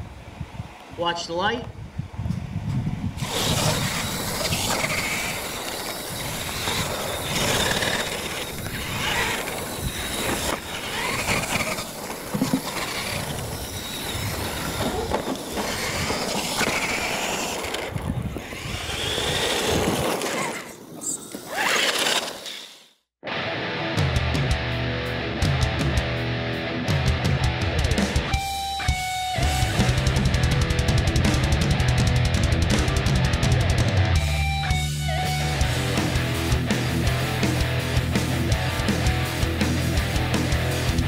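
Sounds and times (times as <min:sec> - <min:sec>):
toy truck motors whining: 0:03.2 - 0:23.0
steady noise: 0:27.2 - 0:41.0.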